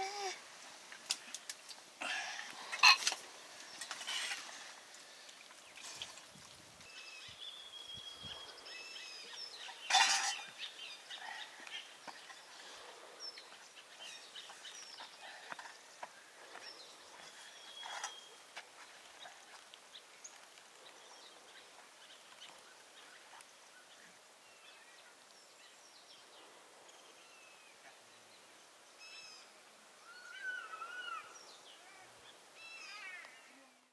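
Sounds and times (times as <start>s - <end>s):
bird chirps: 16.5s - 18.4s
wavering animal call: 30.0s - 31.4s.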